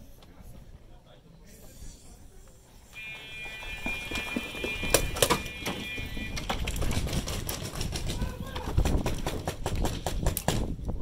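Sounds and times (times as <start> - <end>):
electric buzzer steady tone: 2.9 - 6.4
paintball markers firing: 6.5 - 10.8.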